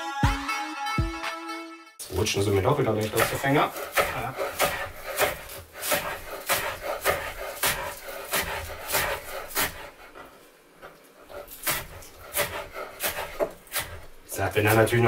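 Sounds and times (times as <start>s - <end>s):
knife chopping on wooden board: 3.0s - 10.0s, 11.4s - 14.9s.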